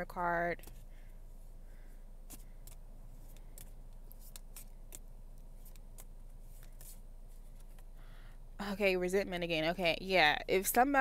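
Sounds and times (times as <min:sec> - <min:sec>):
low steady hum: 0:00.0 - 0:11.0
cards being shuffled: 0:02.2 - 0:07.9.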